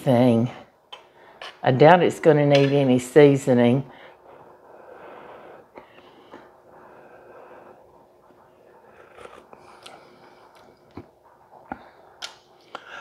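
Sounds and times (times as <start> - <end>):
person blowing and sipping: 7.8 - 13.0.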